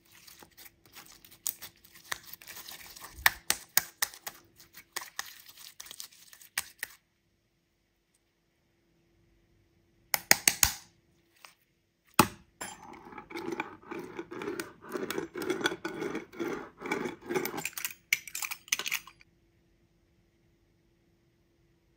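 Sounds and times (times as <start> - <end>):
pizza cutter rolling over slime: 12.9 - 17.7.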